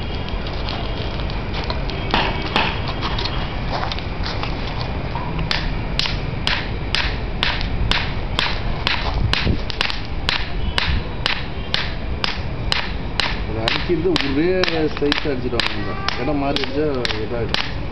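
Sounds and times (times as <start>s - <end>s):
steady background noise: 0.0s - 17.9s
hammer striking hot steel: 5.5s - 17.8s.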